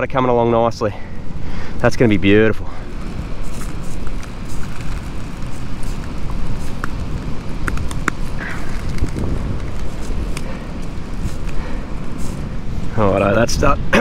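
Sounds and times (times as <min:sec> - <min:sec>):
campfire crackling and popping: 0:02.8 - 0:12.6
wind rumbling on microphone: 0:02.8 - 0:14.0.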